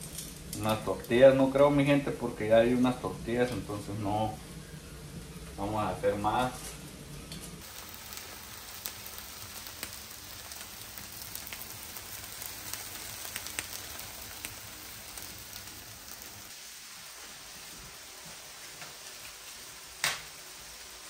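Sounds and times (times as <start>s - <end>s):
fat crackling and popping: 0.0s - 1.9s, 7.3s - 16.5s
steak sizzling: 7.6s - 21.0s.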